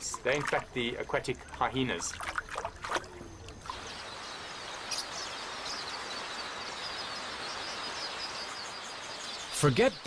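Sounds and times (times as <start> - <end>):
huge flock of birds chirping: 3.2 - 10.0.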